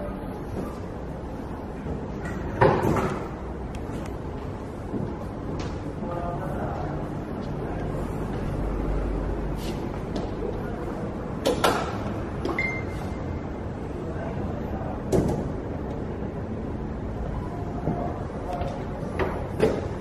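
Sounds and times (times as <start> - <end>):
showroom room noise: 0.0 - 20.0
short high beep: 12.6 - 13.2.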